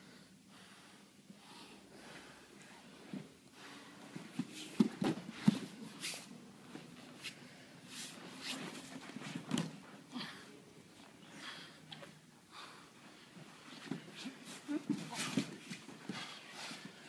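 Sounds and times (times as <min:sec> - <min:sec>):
bodies thumping on mats: 0:04.4 - 0:05.8.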